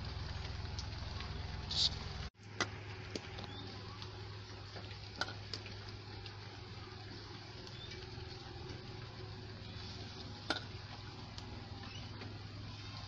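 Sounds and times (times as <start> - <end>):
low hum and hiss: 0.0 - 13.0
steel plate clinking: 10.4 - 10.8.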